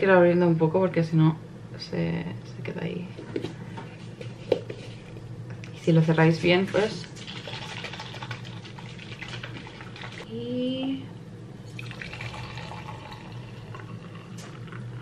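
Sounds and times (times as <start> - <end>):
liquid pouring into mug: 7.2 - 10.2, 11.7 - 14.8.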